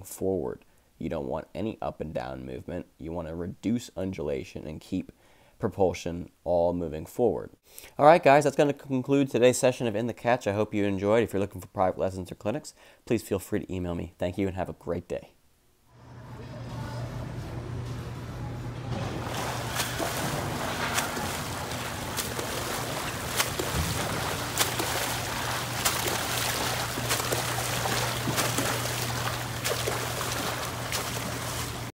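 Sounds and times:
steady low hum: 16.0 - 31.9
swimmer splashing in pool: 18.9 - 31.9.

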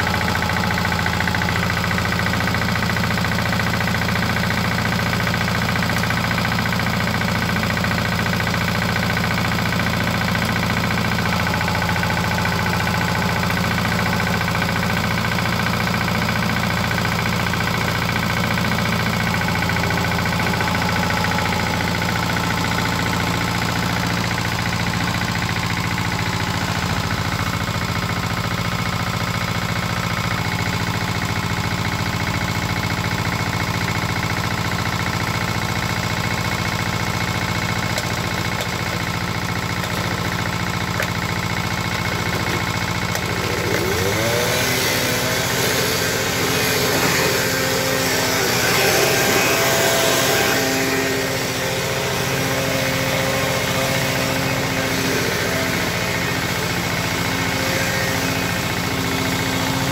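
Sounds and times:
small engine idling: 0.0 - 59.9
second small engine whining: 35.3 - 59.9.

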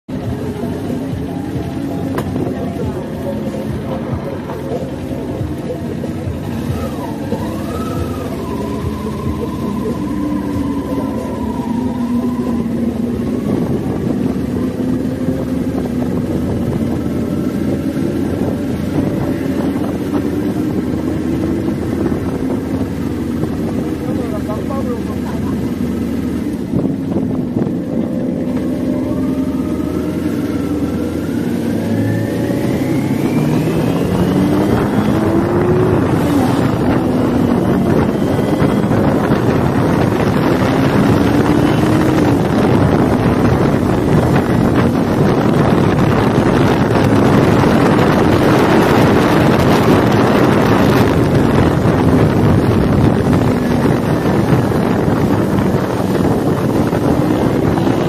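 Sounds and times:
motorcycle engine accelerating: 0.0 - 58.0
wind noise on microphone: 0.1 - 58.0.

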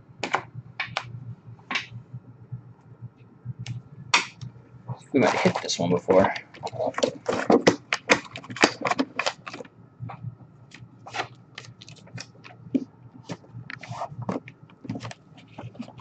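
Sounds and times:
plastic crinkles and taps: 6.3 - 16.0
cardboard box and packaging rustling: 6.5 - 9.7.

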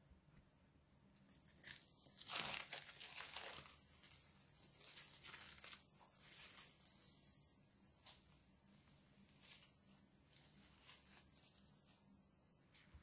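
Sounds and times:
cling film crinkling: 1.2 - 7.4, 8.0 - 12.0.

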